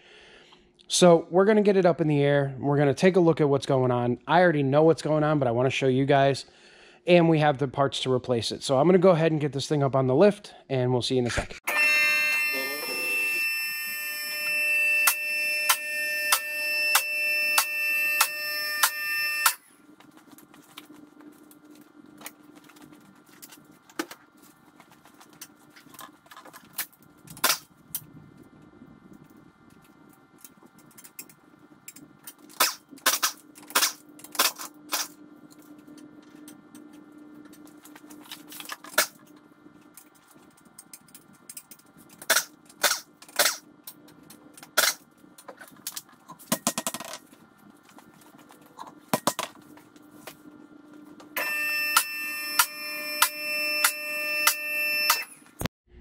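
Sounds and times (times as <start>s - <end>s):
steady low hum: 12.5s - 56.0s.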